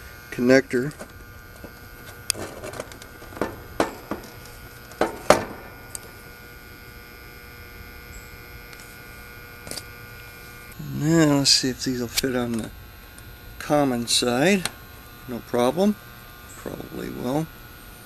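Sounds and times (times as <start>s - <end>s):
steady hum: 0.0s - 18.0s
wire crimper metallic clicks: 0.9s - 6.2s.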